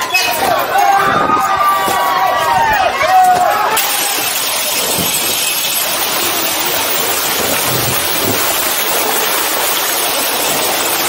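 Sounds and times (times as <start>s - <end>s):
falling splashing water: 3.8s - 11.0s.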